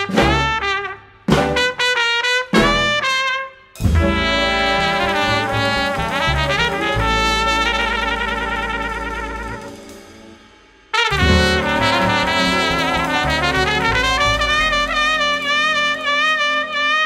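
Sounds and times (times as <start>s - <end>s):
jazz band playing: 0.0s - 17.0s
cymbals washing: 3.8s - 16.8s.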